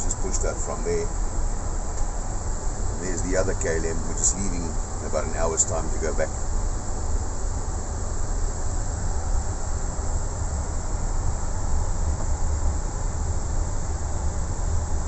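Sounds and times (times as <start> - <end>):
even hiss: 0.0 - 9.8
airframe low rumble: 0.0 - 15.0.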